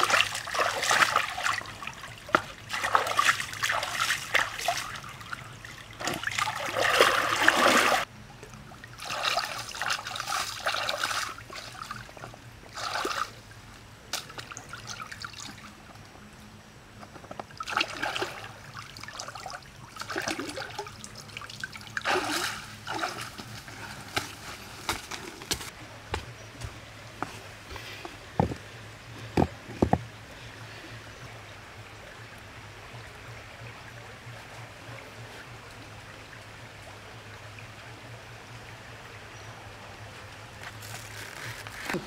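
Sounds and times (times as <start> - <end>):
water splashing in a stream: 0.0 - 15.8, 17.5 - 25.7.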